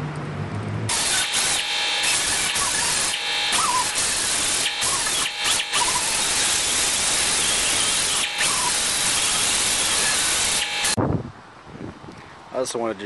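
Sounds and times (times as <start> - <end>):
pneumatic air tool hissing: 0.9 - 11.0.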